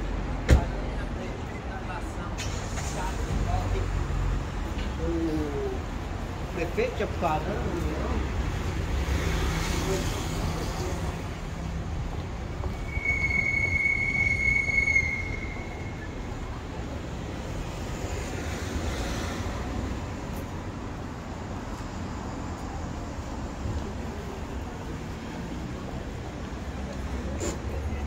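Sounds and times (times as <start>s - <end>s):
city street traffic: 0.0s - 28.0s
high-pitched squeal: 12.7s - 16.6s.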